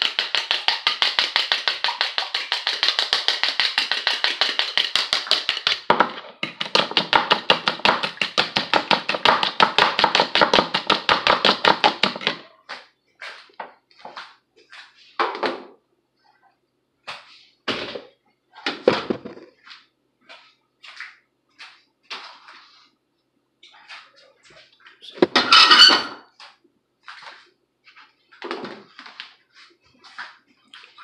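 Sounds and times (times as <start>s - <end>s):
whisking eggs in plastic bowl: 0.0s - 12.6s.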